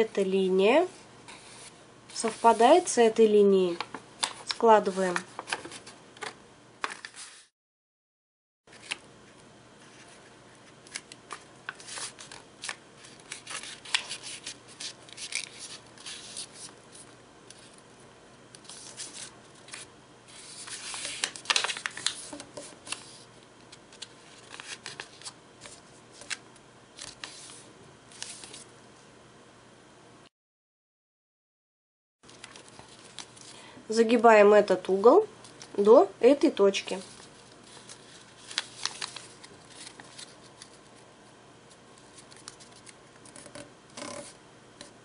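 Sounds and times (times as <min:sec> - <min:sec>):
paper crinkling and crackling: 0:03.7 - 0:07.5, 0:09.8 - 0:17.8, 0:18.6 - 0:26.4, 0:27.0 - 0:28.7, 0:32.3 - 0:33.6, 0:36.9 - 0:41.0, 0:41.7 - 0:44.3.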